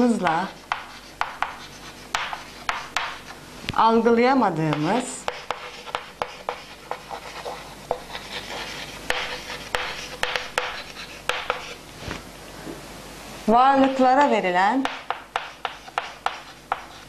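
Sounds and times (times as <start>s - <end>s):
chalk scratching on chalkboard: 0.1s - 3.3s, 4.7s - 11.8s, 14.8s - 17.0s
chalk tapping on board: 0.2s - 3.3s, 4.7s - 11.8s, 13.8s - 14.1s, 14.8s - 17.0s.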